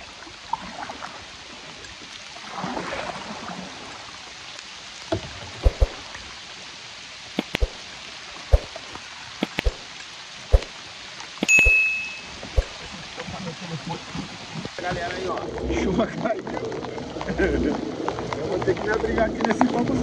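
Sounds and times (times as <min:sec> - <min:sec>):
rain hissing: 0:01.3 - 0:19.4
swish: 0:05.6 - 0:06.0, 0:07.4 - 0:07.8, 0:08.5 - 0:08.8, 0:09.4 - 0:09.8, 0:10.5 - 0:10.7, 0:12.6 - 0:12.8.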